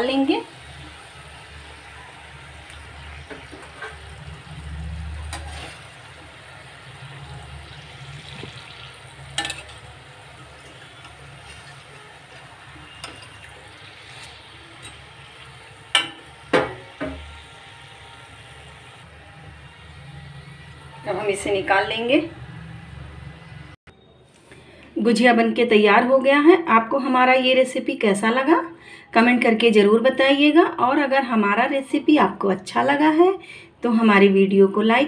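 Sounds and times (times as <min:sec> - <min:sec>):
deep-frying sizzle: 0:00.0 - 0:23.8
metal skimmer clinking on pan: 0:09.3 - 0:09.9.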